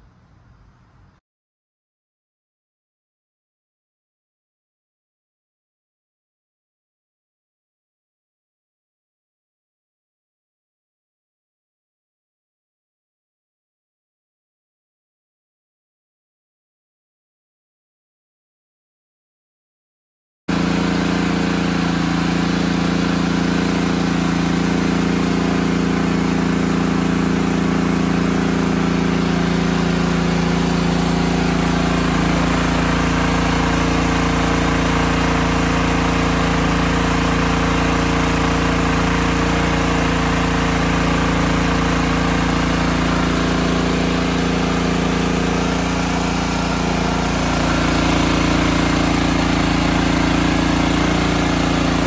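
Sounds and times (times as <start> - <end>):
generator engine running steadily: 20.5 - 52.0.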